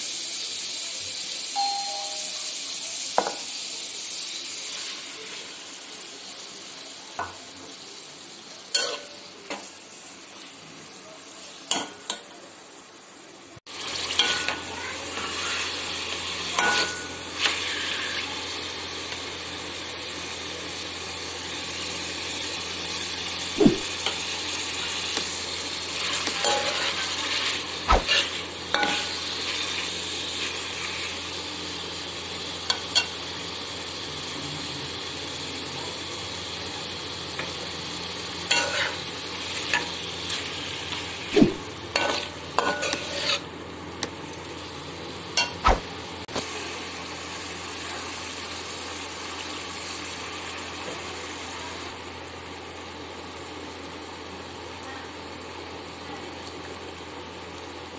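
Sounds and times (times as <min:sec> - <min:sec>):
chicken sizzling in oil: 0:00.0 - 0:57.9
metal spoon scraping wok: 0:26.0 - 0:29.6, 0:38.5 - 0:40.5, 0:41.3 - 0:43.5.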